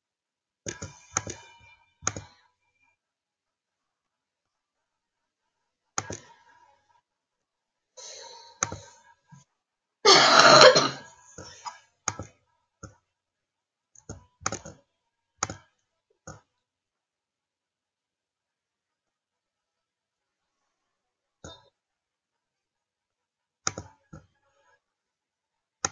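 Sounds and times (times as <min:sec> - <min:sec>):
computer mouse clicks: 0:00.7 - 0:02.3, 0:06.0 - 0:06.4, 0:08.6 - 0:08.9, 0:11.4 - 0:13.0, 0:14.0 - 0:14.8, 0:15.4 - 0:15.7, 0:23.6 - 0:24.3
person clearing throat: 0:10.1 - 0:11.0.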